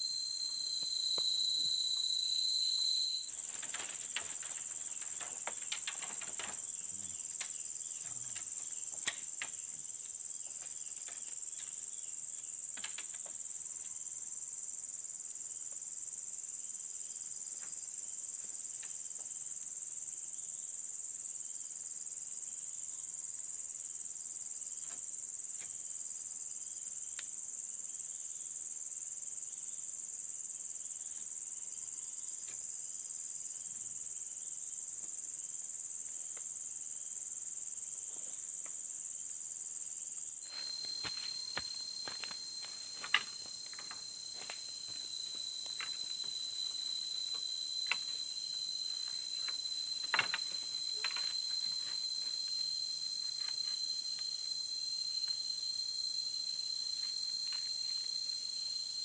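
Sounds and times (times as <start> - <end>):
forest insects chorus: 0.0 - 59.0
bamboo poles clicking and knocking: 3.3 - 9.6, 12.7 - 13.4, 40.5 - 52.6, 53.2 - 54.3.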